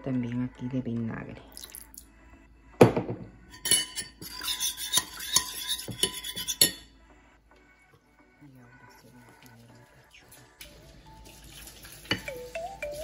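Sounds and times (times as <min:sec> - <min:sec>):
metal spoon stirring in a dish: 0:03.5 - 0:06.8.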